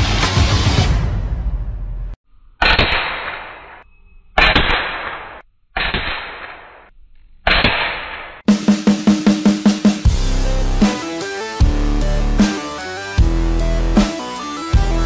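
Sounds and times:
music: 0.0 - 2.2, 8.5 - 15.0
air rifle shots: 2.6 - 3.8, 4.4 - 8.5.

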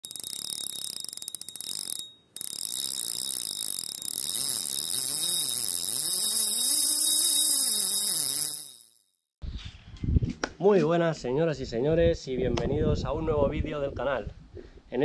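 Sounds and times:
rapid even ticking: 0.0 - 9.0
low tones sliding up and down: 0.6 - 9.0.

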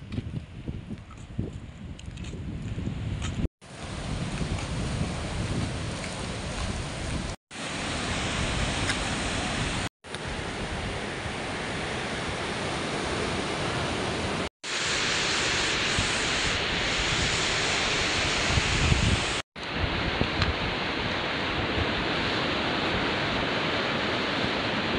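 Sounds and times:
wind buffeting microphone: 0.0 - 11.4, 15.9 - 23.7
surf breaking on beach: 3.6 - 24.9.

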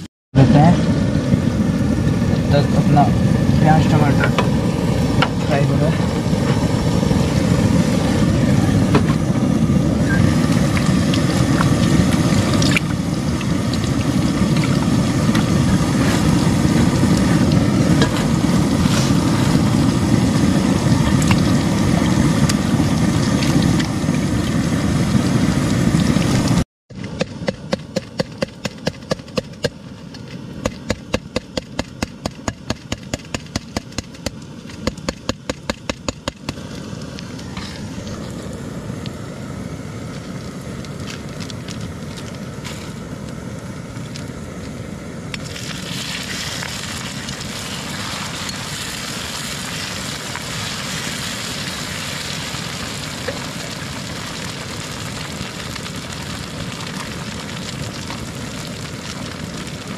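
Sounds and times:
loud steady roar: 0.0 - 28.0
water poured from a jug: 45.4 - 59.9.

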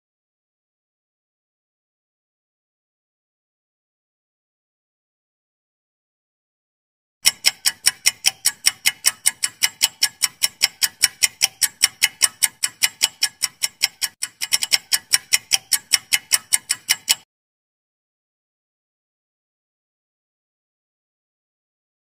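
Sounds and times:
countdown timer ticking: 7.2 - 17.2.

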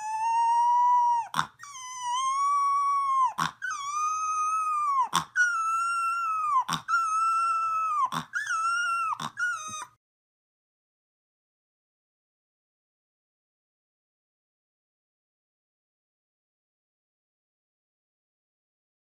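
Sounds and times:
puppy howling: 0.0 - 10.0.

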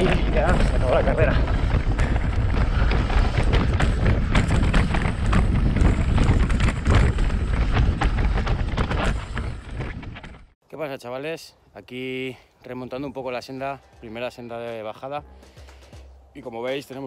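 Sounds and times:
bike rattling and clattering: 0.0 - 10.6
wind buffeting microphone: 0.0 - 10.6.

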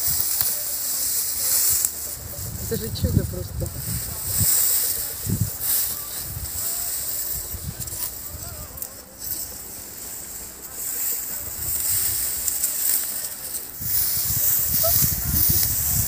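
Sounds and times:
wind hissing through reeds: 0.0 - 16.0
wind rumbling on microphone: 1.9 - 8.8, 13.6 - 16.0.

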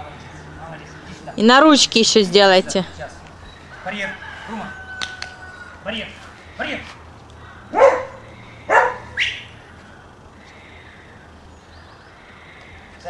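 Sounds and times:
dog barking: 7.7 - 9.4.

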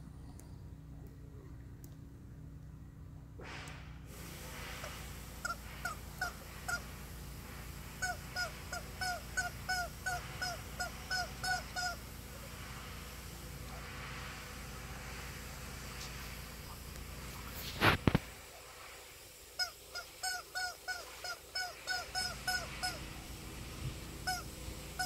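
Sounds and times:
rubber chicken toy squawking: 5.4 - 6.9, 8.0 - 12.0, 19.6 - 23.0, 24.2 - 25.0.

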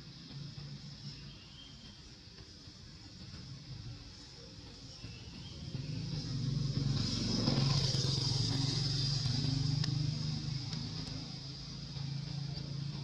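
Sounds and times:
vehicle engine passing: 5.4 - 13.0.

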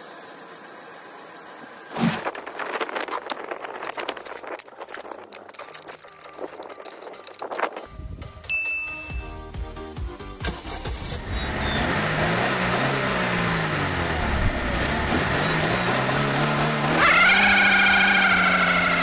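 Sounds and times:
car engine revving: 10.4 - 19.0
high wavering tyre squeal: 16.9 - 19.0.

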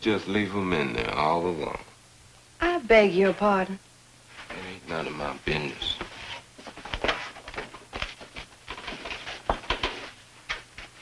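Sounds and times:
footsteps: 5.7 - 11.0.

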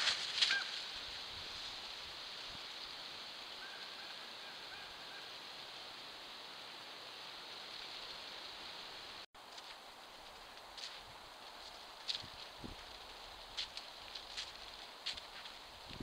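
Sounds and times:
microphone hiss: 0.0 - 16.0
faint high animal calls: 0.4 - 1.0, 3.6 - 5.4.

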